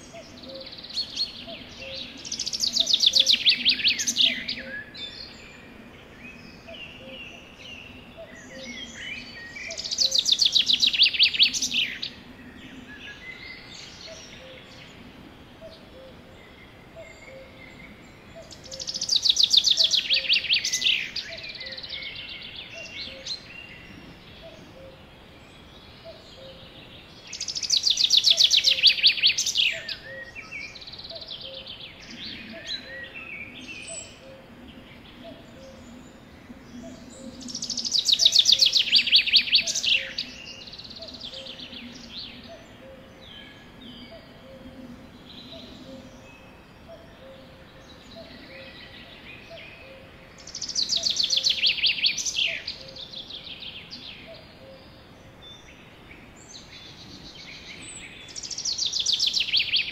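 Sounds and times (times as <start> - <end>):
songbird trilling: 0.0 - 4.9, 8.2 - 12.1, 17.0 - 23.7, 27.3 - 34.4, 36.8 - 44.8, 45.4 - 54.9, 57.8 - 59.9.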